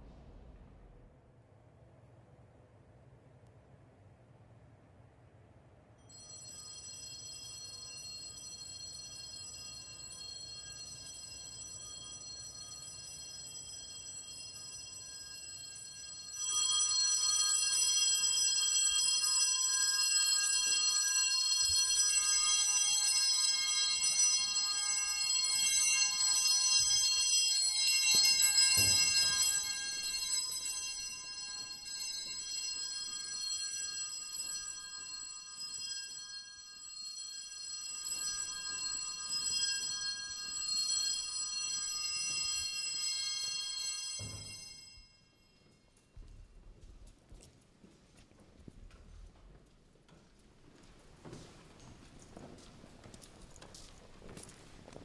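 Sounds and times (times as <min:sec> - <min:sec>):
high shimmering chime tones: 0:21.2 - 0:36.6.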